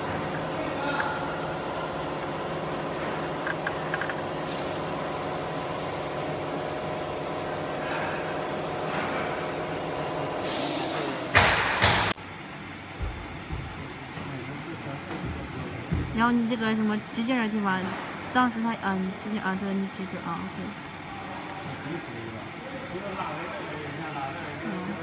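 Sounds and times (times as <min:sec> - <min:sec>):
laser machine electric hum: 0:00.0 - 0:25.0
loud hiss: 0:10.4 - 0:12.1.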